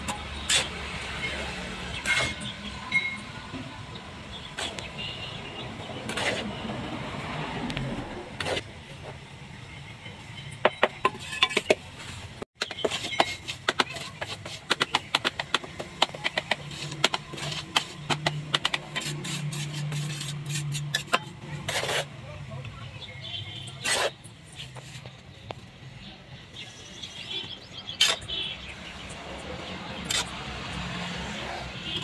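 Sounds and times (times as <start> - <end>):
trowel scraping cement: 0.4 - 1.0, 2.0 - 2.5, 4.6 - 4.9, 5.8 - 6.8, 8.3 - 8.7, 11.1 - 22.2, 23.7 - 25.1, 27.9 - 28.4, 29.9 - 32.0
trowel tapping: 12.6 - 22.0.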